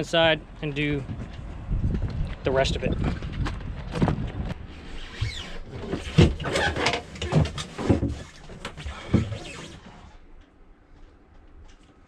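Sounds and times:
knocks and clunks of gear: 3.0s - 4.6s.

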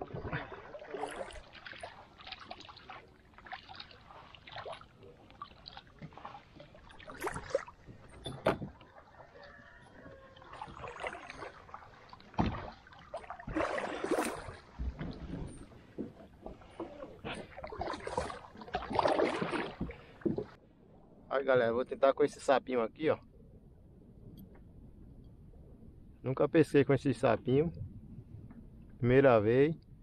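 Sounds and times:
paddle splashing in water: 0.0s - 20.6s.

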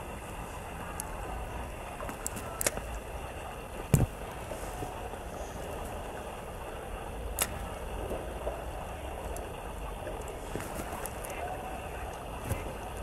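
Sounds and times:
fishing rod thump: 3.9s - 4.2s.

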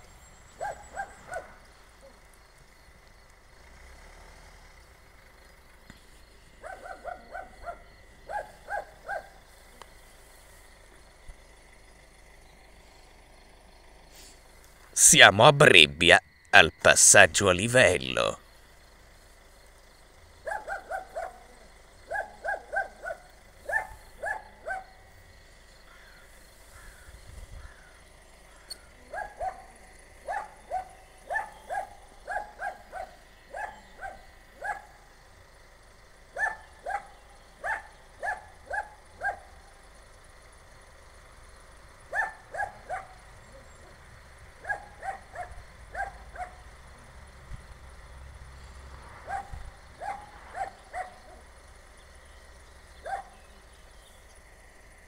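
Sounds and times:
dog barking: 0.6s - 1.7s, 6.6s - 9.4s, 20.4s - 25.0s, 29.1s - 35.0s, 36.3s - 39.6s, 42.1s - 43.2s, 44.6s - 46.6s, 49.2s - 51.5s, 53.0s - 53.4s.

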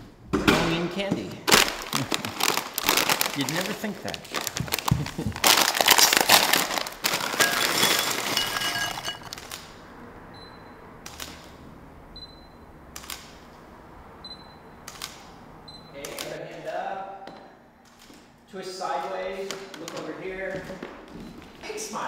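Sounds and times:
loud crinkling rustle: 1.5s - 9.5s.

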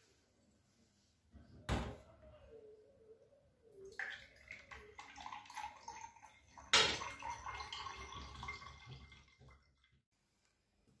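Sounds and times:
tap water running into glass: 4.0s - 9.9s.

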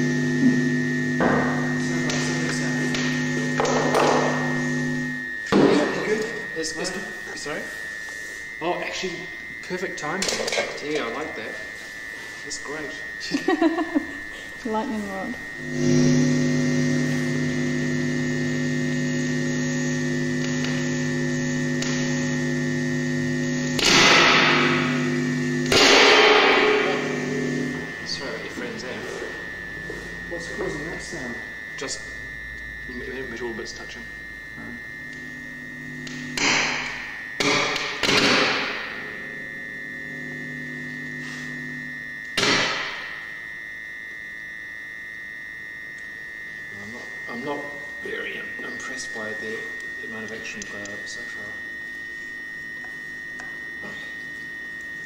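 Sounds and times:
electrical hum of held tones: 0.0s - 55.0s
steady high whine: 0.0s - 55.0s
loud electrical crackle: 15.6s - 27.5s.

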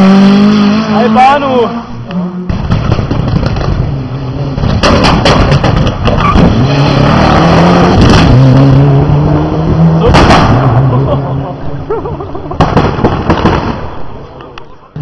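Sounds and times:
rally car engine at high revs: 0.0s - 11.9s
sharp cracks: 2.6s - 3.9s.

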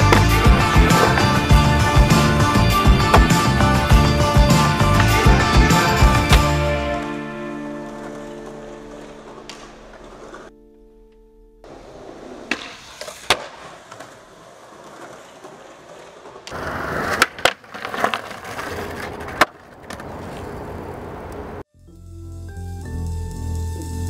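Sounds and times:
skateboard clacking on ground: 0.0s - 4.0s, 7.9s - 10.5s, 11.7s - 21.6s
skateboard wheels rolling on concrete: 0.0s - 10.5s, 11.6s - 21.7s
music: 0.0s - 11.7s, 21.7s - 24.0s.

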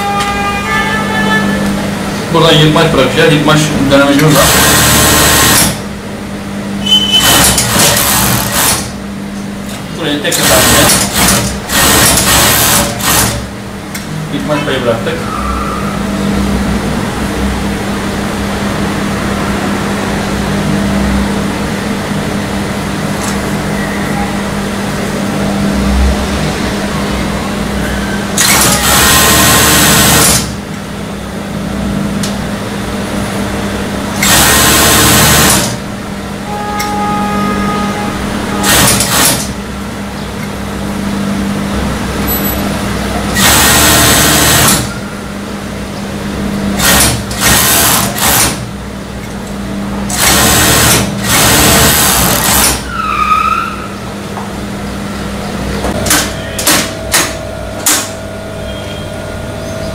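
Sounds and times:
sewing machine stitching: 4.2s - 5.8s, 7.1s - 8.9s, 10.3s - 13.5s, 28.4s - 30.5s, 34.2s - 35.8s, 38.6s - 39.5s, 43.4s - 44.9s, 46.8s - 48.6s, 50.1s - 52.9s.

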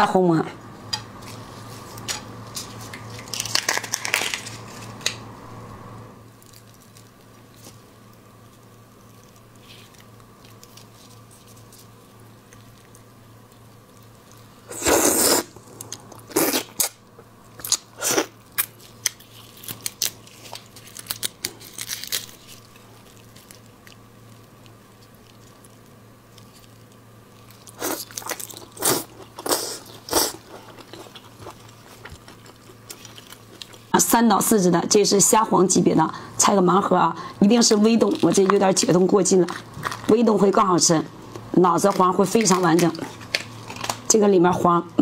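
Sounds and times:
prawn shells crunching: 2.0s - 5.1s, 6.3s - 16.9s, 17.6s - 33.9s, 37.6s - 40.2s, 41.2s - 44.1s
chewing: 8.6s - 14.4s, 18.6s - 33.9s.

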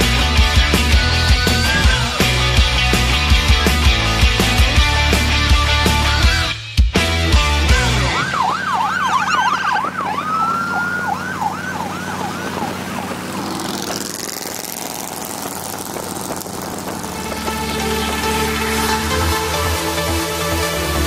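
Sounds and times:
low engine drone: 0.0s - 6.5s, 7.4s - 21.0s
siren wailing: 8.0s - 13.5s.

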